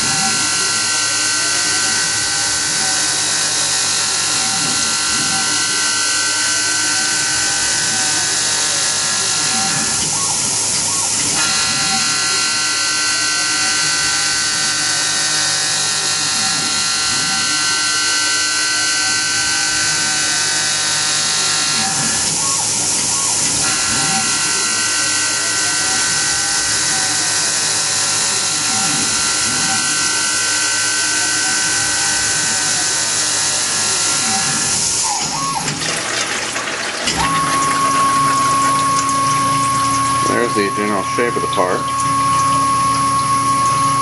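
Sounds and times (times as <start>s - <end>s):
milling spindle whine: 0.0s - 44.0s
high whine: 37.0s - 44.0s.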